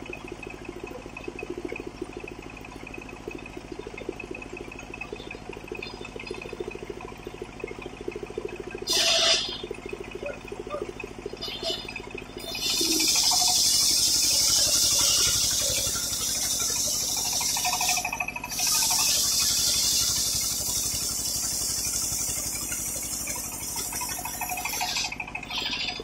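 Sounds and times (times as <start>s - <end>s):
saw drive humming: 4.0s - 26.0s
circular saw cutting log: 8.9s - 9.7s, 12.5s - 26.0s.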